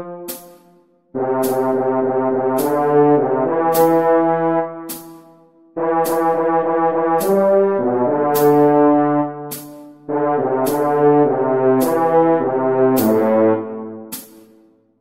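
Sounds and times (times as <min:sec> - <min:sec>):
sharp metronome click: 0:00.3 - 0:00.8, 0:01.4 - 0:01.8, 0:02.5 - 0:03.0, 0:03.7 - 0:04.2, 0:04.8 - 0:05.4, 0:06.0 - 0:06.4, 0:07.2 - 0:07.5, 0:08.4 - 0:08.8, 0:09.5 - 0:11.2, 0:11.8 - 0:12.4, 0:13.0 - 0:14.6
french horn melody: 0:01.2 - 0:05.2, 0:05.8 - 0:14.2.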